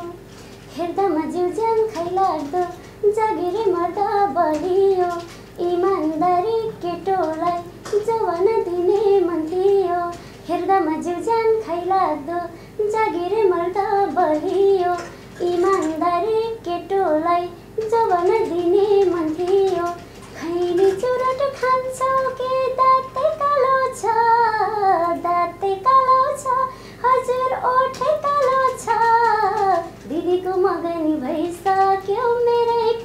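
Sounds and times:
woman singing unaccompanied: 0.0s - 33.0s.

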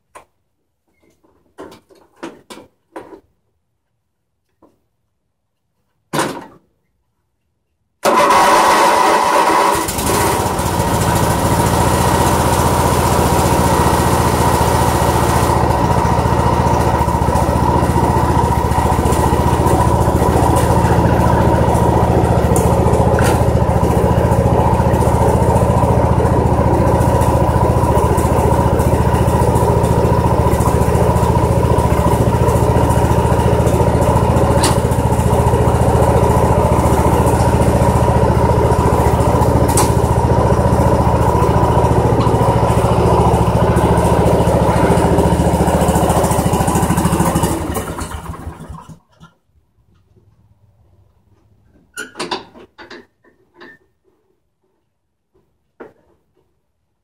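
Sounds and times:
small engine starting and running: 8.0s - 49.4s.

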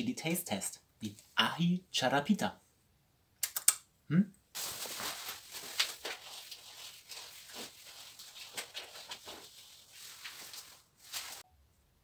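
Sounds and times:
plant leaves rustling: 4.6s - 11.5s.

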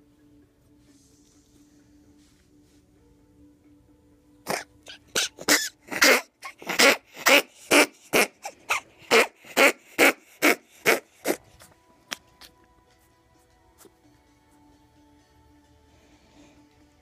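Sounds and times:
ferret coughing: 4.4s - 11.4s.

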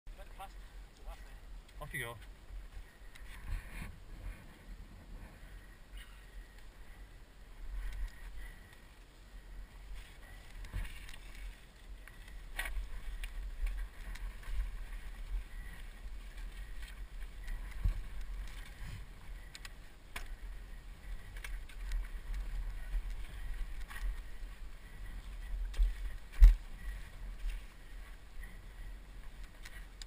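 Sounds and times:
bike rumble on rocky trail: 0.2s - 30.0s
bike clicks and rattles: 0.9s - 30.0s.

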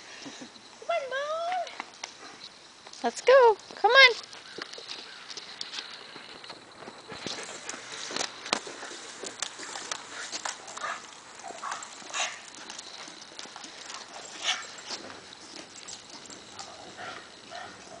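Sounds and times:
dog paws on asphalt: 0.9s - 18.0s
footsteps on asphalt: 3.6s - 18.0s.

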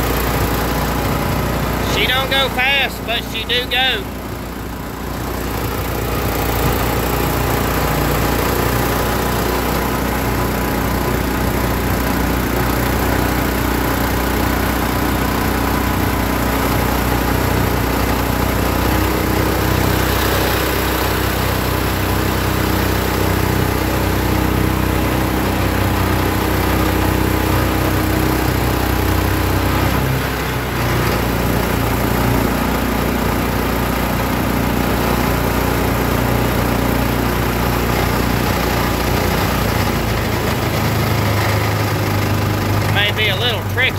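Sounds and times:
boat motor running: 0.0s - 43.9s.

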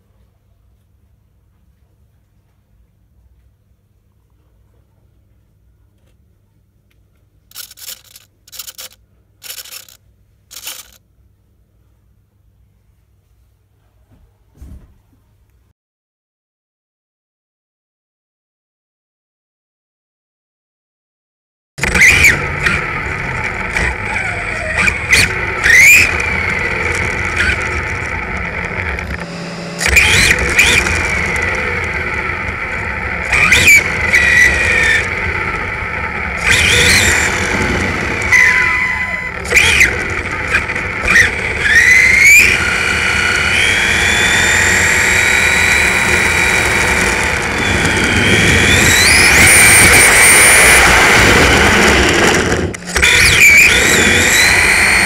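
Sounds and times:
rc car motor whining: 7.5s - 11.0s, 21.8s - 55.0s.

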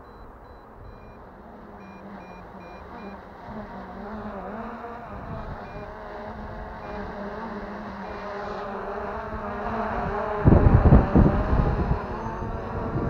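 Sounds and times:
short high-pitched beeps: 0.0s - 3.2s, 5.6s - 6.0s
drone propellers humming: 0.0s - 13.0s
wind noise on microphone: 4.9s - 13.0s.

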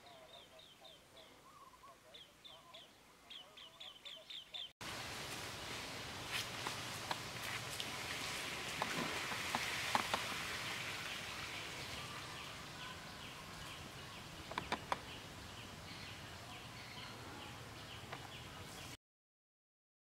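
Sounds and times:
steady hiss: 4.8s - 16.8s
sharp clicks: 14.5s - 15.1s.

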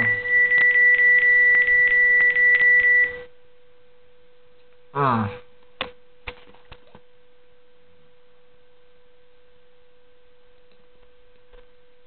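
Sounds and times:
steady electronic whine: 0.0s - 3.6s.

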